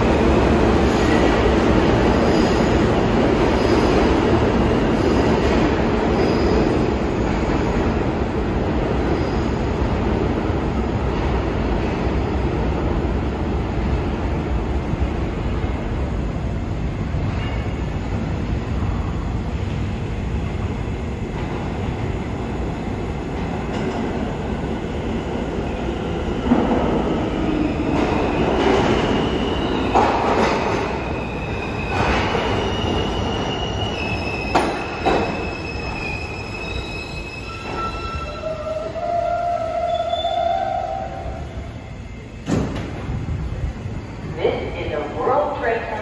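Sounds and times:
subway train rumble: 0.0s - 46.0s
high wheel squeal: 31.1s - 40.9s.

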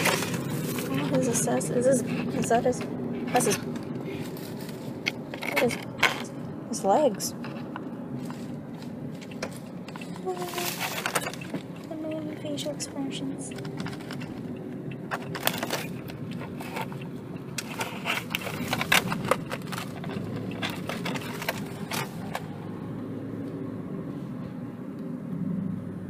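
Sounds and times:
car hum: 0.0s - 26.0s
plastic tray crinkling: 17.6s - 22.4s.

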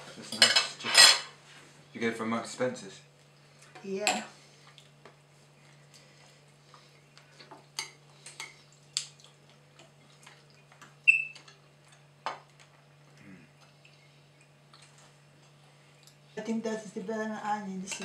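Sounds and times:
faint steady hum: 0.0s - 18.0s
cutlery clinking on plates: 0.3s - 1.3s.

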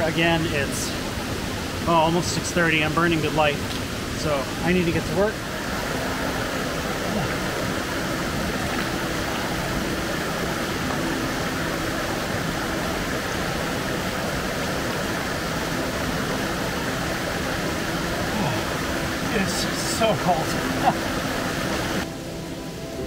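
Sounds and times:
water rushing over waterfall: 0.0s - 23.0s.

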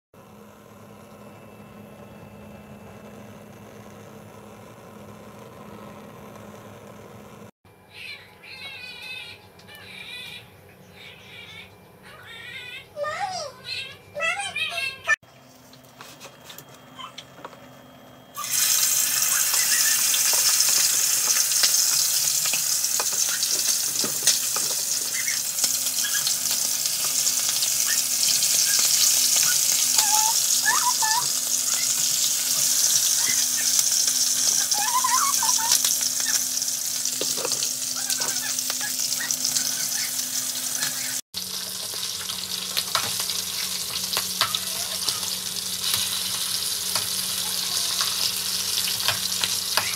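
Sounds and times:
chicken sizzling in hot oil: 18.4s - 49.9s.

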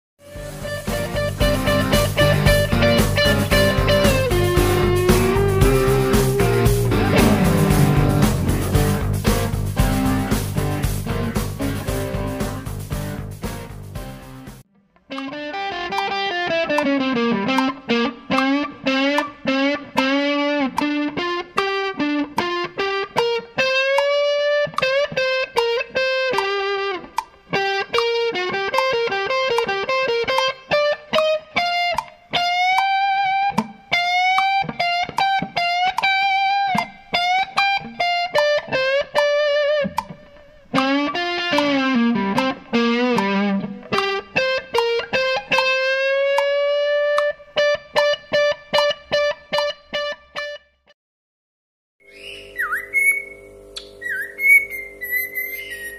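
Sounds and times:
guitar melody with sliding bends: 0.2s - 50.8s, 52.1s - 55.9s.

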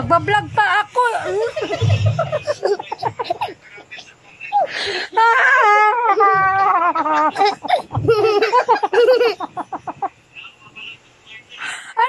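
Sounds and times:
girl giggling: 1.2s - 3.6s, 4.6s - 10.1s
woman wailing: 5.2s - 6.8s.

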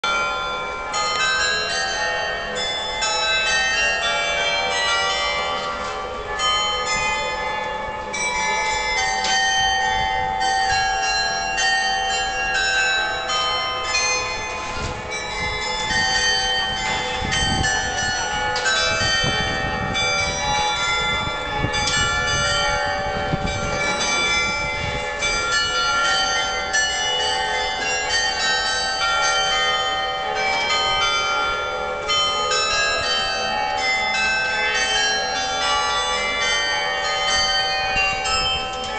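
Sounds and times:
carillon bells playing a tune: 0.0s - 38.9s.

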